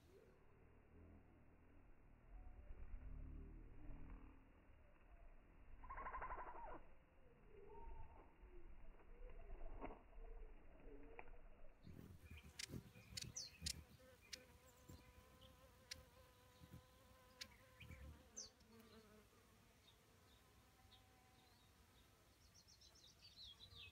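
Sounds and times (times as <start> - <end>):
hummingbird wings buzzing: 11.9 - 19.4.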